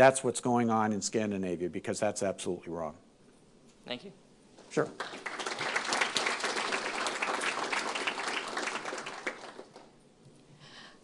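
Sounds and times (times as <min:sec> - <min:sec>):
audience applauding: 0:04.8 - 0:09.9.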